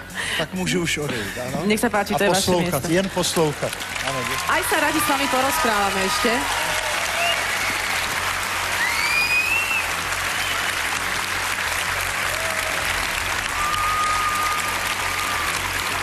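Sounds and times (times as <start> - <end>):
audience applauding: 2.8 - 16.0
whistles from audience: 7.1 - 8.1, 8.7 - 10.8, 13.5 - 15.6.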